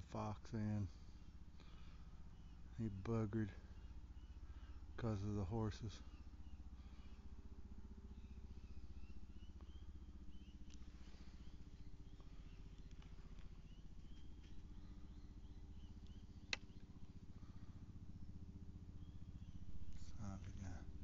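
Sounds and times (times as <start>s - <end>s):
steady low hum: 0.0s - 21.0s
sharp click: 16.0s - 16.8s.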